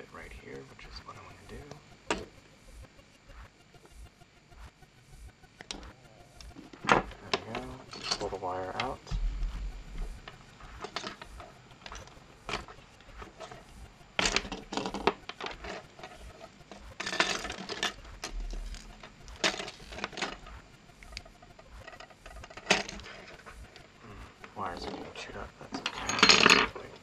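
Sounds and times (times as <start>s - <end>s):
plastic parts clicking and scraping: 10.2s - 13.6s, 14.2s - 26.9s.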